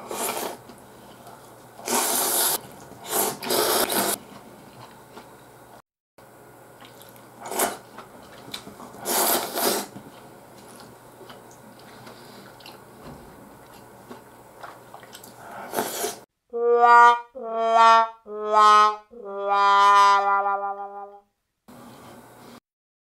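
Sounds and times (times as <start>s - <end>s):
noodles slurped from bowl: 0.0s - 0.6s, 1.8s - 4.2s, 9.0s - 10.0s, 15.0s - 16.2s
small clicks and mouth sounds: 13.6s - 16.0s.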